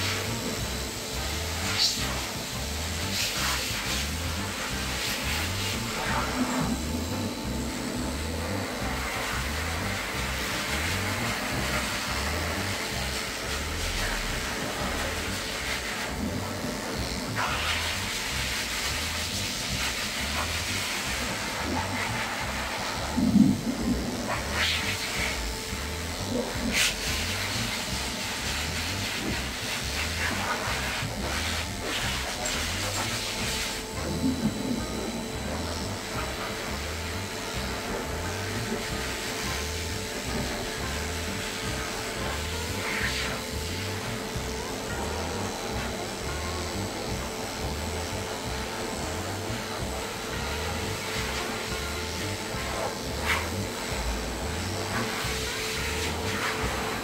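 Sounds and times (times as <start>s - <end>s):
background music: 0.0s - 57.0s
electric clipper running: 0.0s - 57.0s.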